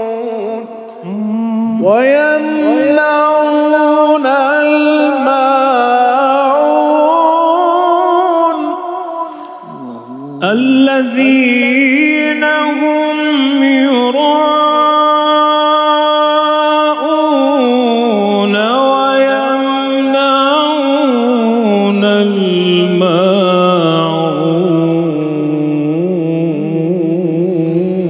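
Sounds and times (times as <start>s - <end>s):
man reciting melodically: 0.0s - 28.0s.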